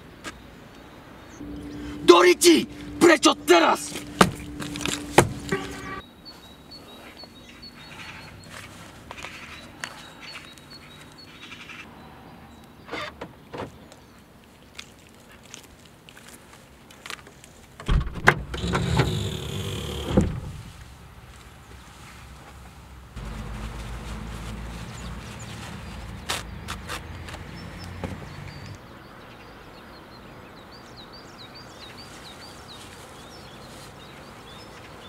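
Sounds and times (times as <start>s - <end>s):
car locks clicking: 4.0s - 6.0s, 17.8s - 20.6s
boot latch clicking open: 17.8s - 19.2s.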